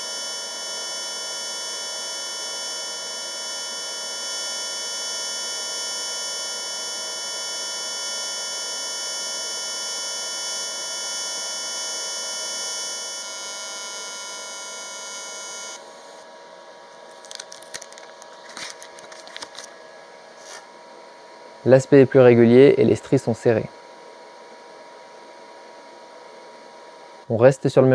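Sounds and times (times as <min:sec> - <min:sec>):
welding arc buzzing: 0:00.0 - 0:16.2.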